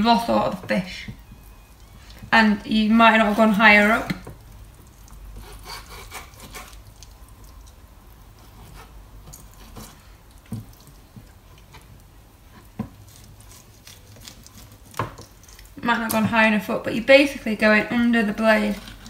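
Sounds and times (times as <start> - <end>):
knife scraping fish bones: 5.4 - 7.1, 13.0 - 15.7, 18.5 - 19.0.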